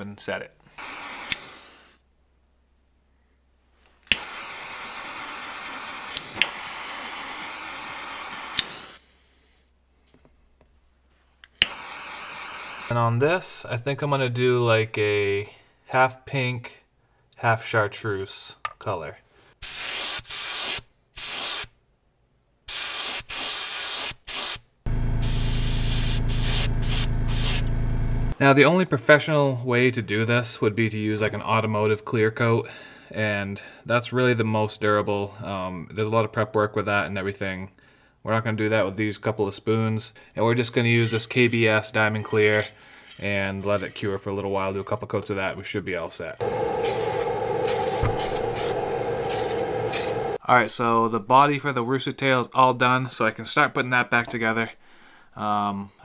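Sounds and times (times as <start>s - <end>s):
heating tool rushing hiss: 4.2s - 8.6s, 25.2s - 27.7s, 46.4s - 50.4s
airbrush spraying: 19.6s - 21.7s, 22.7s - 24.6s, 25.2s - 27.7s, 46.4s - 50.4s
low motor hum: 24.9s - 28.4s, 46.4s - 50.4s.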